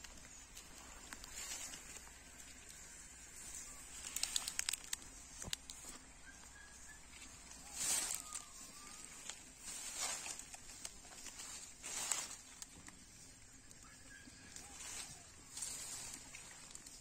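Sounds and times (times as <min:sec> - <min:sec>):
faint bird chirps: 0:05.9 - 0:10.7
cows tearing grass: 0:07.6 - 0:13.2, 0:14.6 - 0:17.0.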